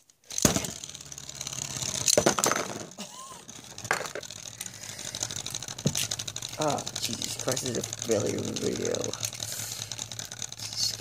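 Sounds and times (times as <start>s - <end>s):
spinning top clattering: 0.3s - 11.0s.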